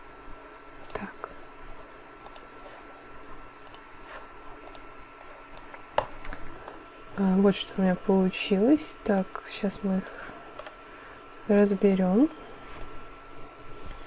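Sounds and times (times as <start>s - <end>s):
soft computer mouse and keyboard clicks: 0.8s - 1.1s, 2.2s - 2.5s, 3.6s - 3.9s, 4.6s - 6.8s, 10.0s - 10.8s, 11.5s - 13.0s.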